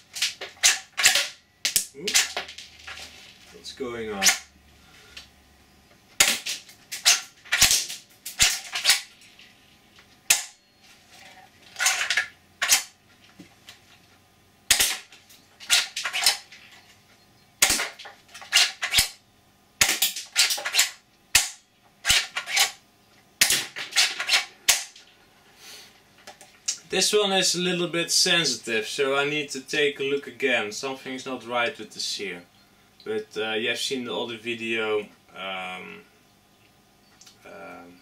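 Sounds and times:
airsoft gun clacks and snaps: 0:00.1 - 0:02.6, 0:06.2 - 0:09.1, 0:11.8 - 0:13.0, 0:14.7 - 0:16.5, 0:17.6 - 0:19.2, 0:19.8 - 0:22.8.

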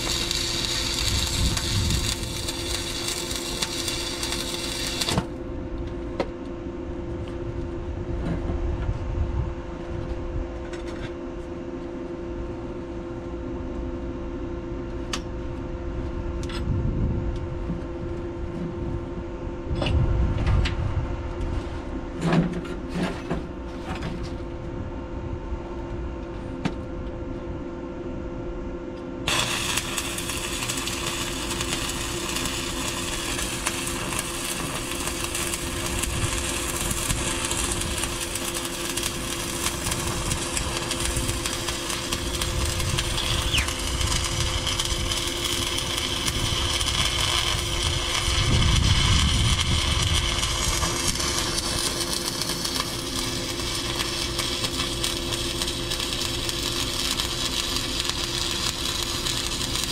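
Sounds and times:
arc welding crackling and hissing: 0:00.0 - 0:05.4, 0:29.2 - 0:59.9.

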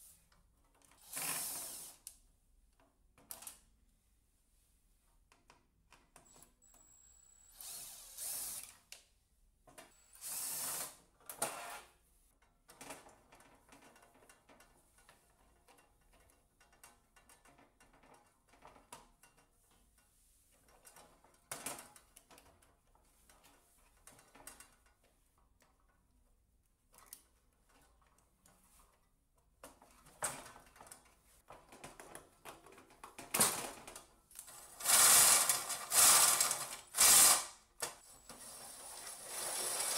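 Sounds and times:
cordless drill running: 0:01.0 - 0:02.0, 0:07.5 - 0:08.7, 0:10.2 - 0:10.9, 0:34.8 - 0:37.5, 0:39.0 - 0:39.9.

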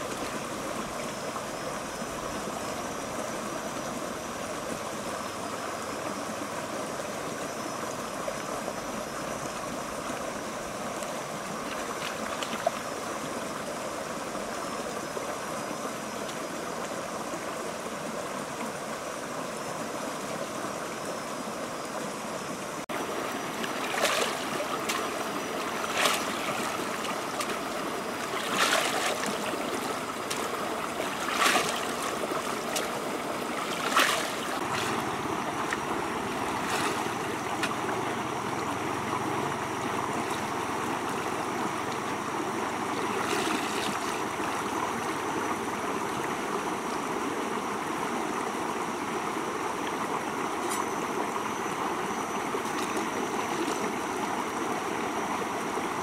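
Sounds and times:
river running over rocks: 0:20.4 - 0:56.0
basket splashing in water: 0:23.6 - 0:32.9, 0:33.6 - 0:35.0.

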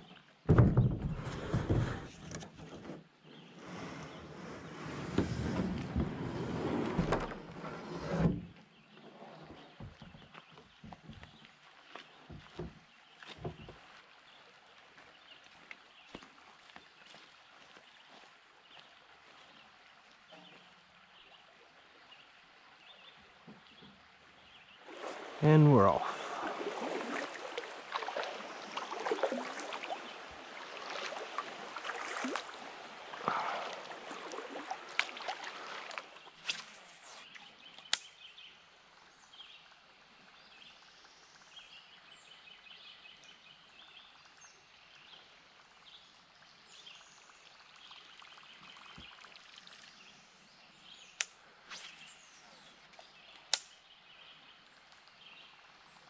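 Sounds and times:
small birds chirping faintly: 0:08.5 - 0:33.8
paddle strokes splashing water: 0:24.7 - 0:37.6.

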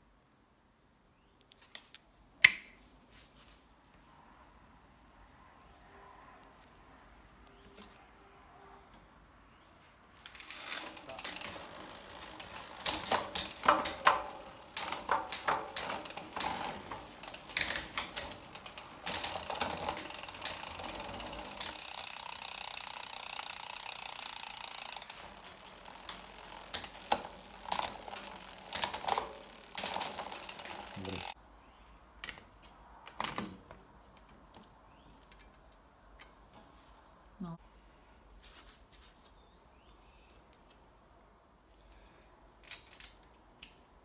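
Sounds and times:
bicycle chain and wheel whirring: 0:10.2 - 0:31.4
metal parts and tools clattering: 0:10.3 - 0:21.8
ratcheting clicks: 0:10.3 - 0:31.4.

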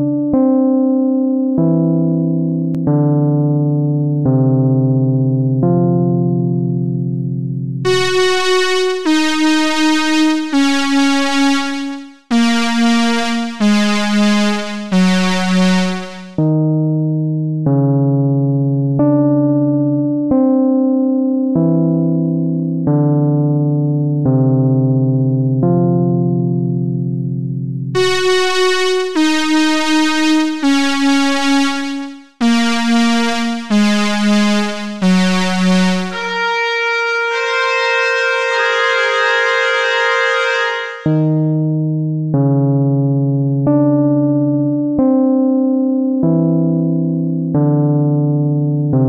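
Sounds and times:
synthesizer lead melody: 0:00.0 - 0:07.2, 0:07.8 - 0:24.4, 0:27.9 - 0:42.5
electronic keyboard notes: 0:00.0 - 0:49.0.

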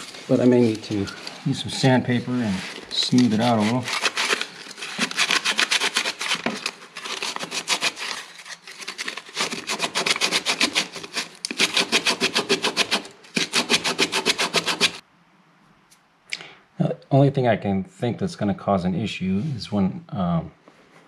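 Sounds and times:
sandpaper rubbing on wood: 0:00.0 - 0:15.0.

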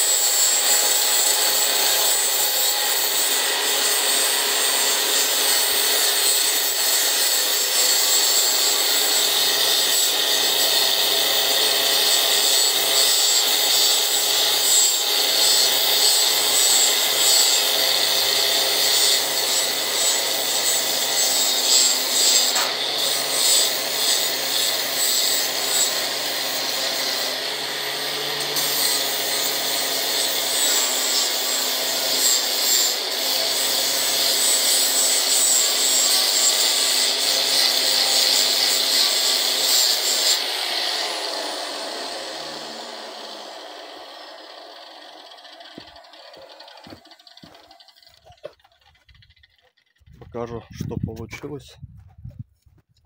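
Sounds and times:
angle grinder grinding metal: 0:00.0 - 0:51.2
motor whine: 0:43.6 - 0:49.4.

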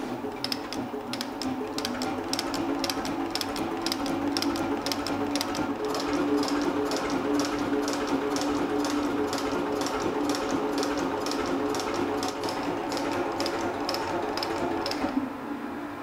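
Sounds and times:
motor and gear hum: 0:00.0 - 0:15.5.

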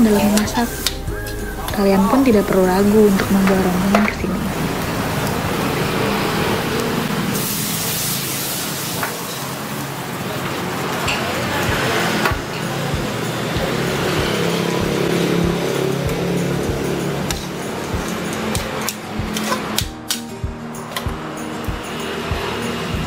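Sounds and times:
broth hissing in hot wok: 0:00.0 - 0:17.8.

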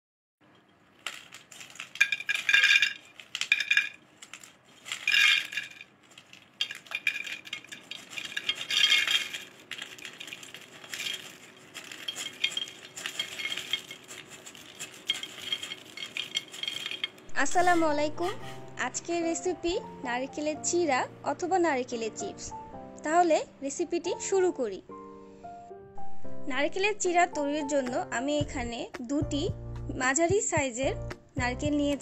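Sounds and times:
coconut slices clattering on clay plate: 0:00.5 - 0:17.7.

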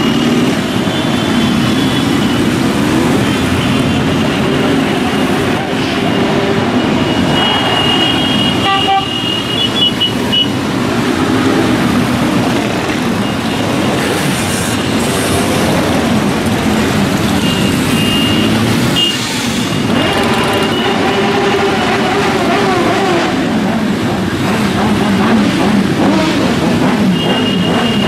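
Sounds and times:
horns honking: 0:00.0 - 0:10.7, 0:17.1 - 0:23.2, 0:26.0 - 0:28.0
motorcycle engines riding past: 0:00.0 - 0:28.0.

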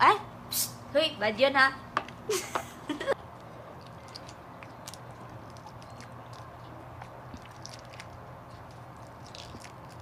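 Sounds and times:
eggshell crackling as peeled: 0:03.8 - 0:10.0.

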